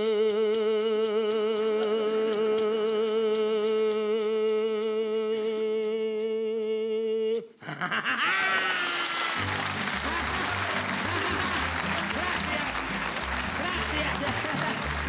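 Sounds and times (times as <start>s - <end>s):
audience applause and cheering: 8.2s - 15.0s.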